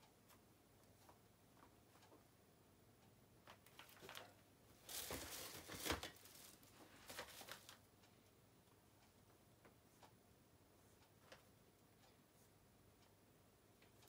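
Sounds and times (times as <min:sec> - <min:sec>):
plastic packaging crinkling: 0:03.6 - 0:07.8.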